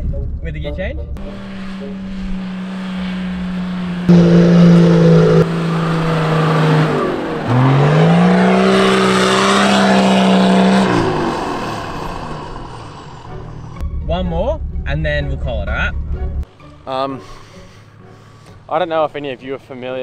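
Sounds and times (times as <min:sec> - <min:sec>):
engine revving hard: 0:01.2 - 0:13.8.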